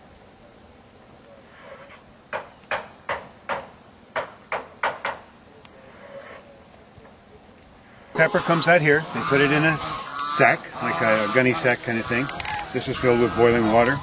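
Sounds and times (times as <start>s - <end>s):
sharp knocks: 2.3s - 5.2s.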